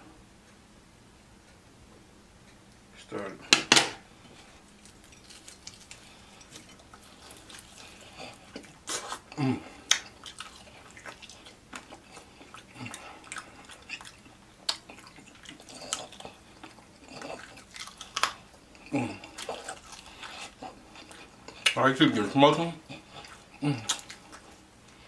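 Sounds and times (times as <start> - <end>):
wet chewing: 4.1 - 25.0
lip smacks: 4.7 - 21.8, 22.8 - 25.0.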